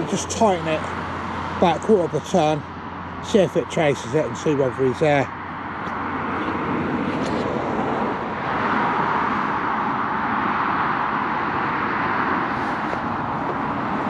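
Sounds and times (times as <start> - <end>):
tyre hiss of passing cars: 6.2 - 14.0.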